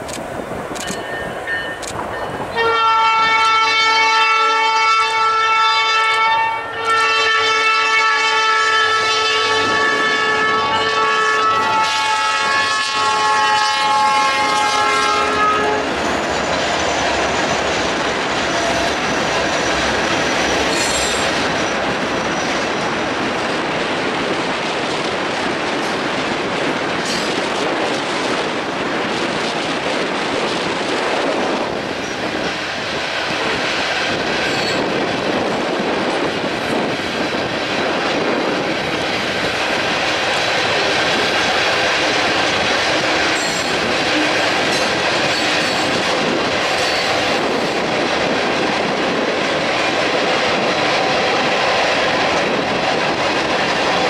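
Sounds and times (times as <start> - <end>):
wheels clacking on rail: 0.0 - 4.1, 9.4 - 54.0
freight train rolling past: 0.0 - 54.0
locomotive horn chord: 2.6 - 16.0.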